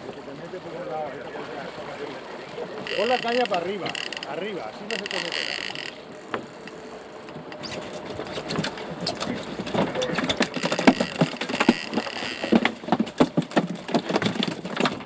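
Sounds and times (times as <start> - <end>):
fish slapping against boat deck: 7.4 - 15.0.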